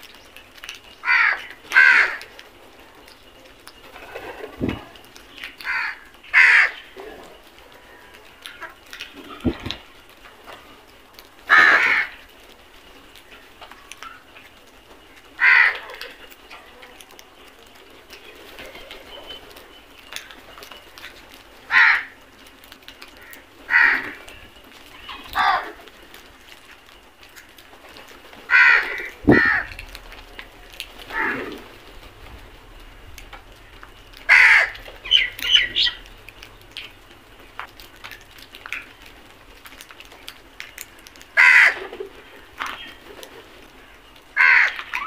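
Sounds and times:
crows cawing: 1.0 - 2.3, 5.6 - 7.0, 11.5 - 12.3, 15.4 - 16.2, 21.7 - 22.2, 23.1 - 24.2, 25.3 - 25.8, 28.5 - 31.7, 33.8 - 36.0, 41.3 - 41.9, 44.3 - 45.0.

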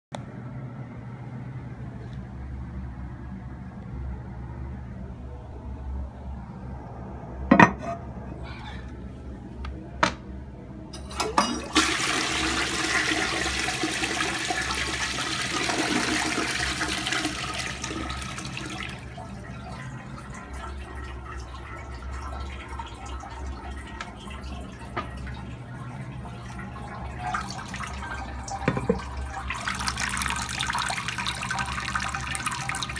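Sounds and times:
toilet flushing: 11.0 - 32.9
toilet tank refilling: 11.0 - 32.9.

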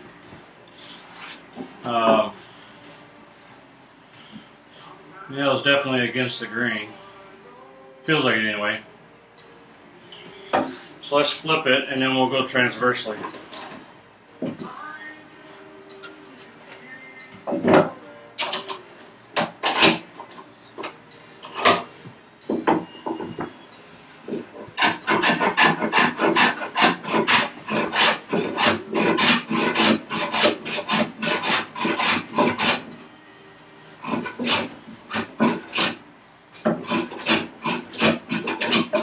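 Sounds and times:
hand plane rasping on wood: 24.3 - 32.9, 34.0 - 36.0, 36.6 - 39.0.

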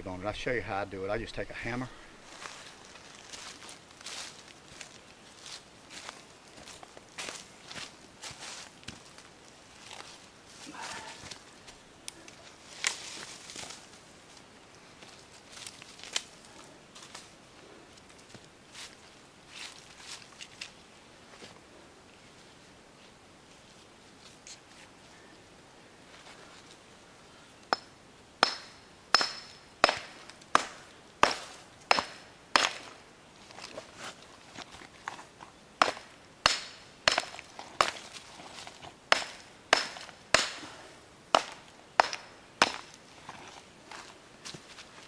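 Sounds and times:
hammer striking mineral block: 27.7 - 32.8, 35.8 - 37.3, 39.1 - 40.6, 41.4 - 42.8.

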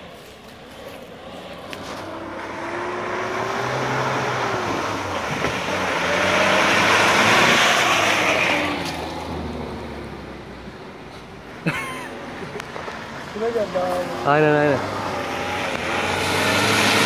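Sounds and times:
off-road car engine revving: 0.6 - 17.0.

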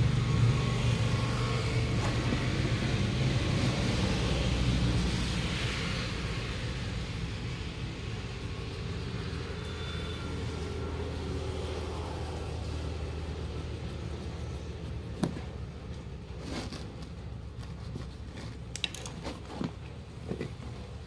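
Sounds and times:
low background rumble: 0.0 - 21.0
knife scraping rubber: 8.1 - 21.0.

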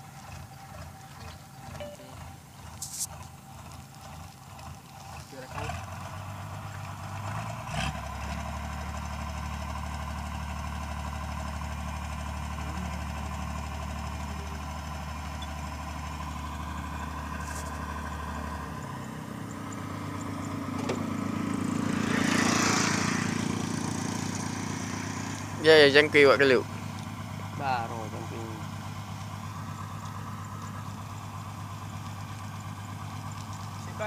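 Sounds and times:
diesel engine running: 0.0 - 34.0.

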